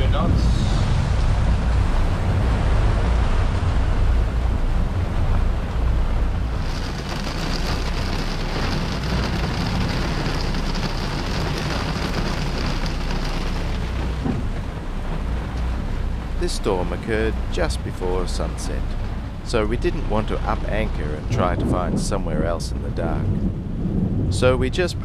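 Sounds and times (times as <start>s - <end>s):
heavy rain on a boat: 0.0s - 25.0s
wind buffeting microphone: 0.0s - 25.0s
rain hissing on window glass: 5.4s - 20.8s.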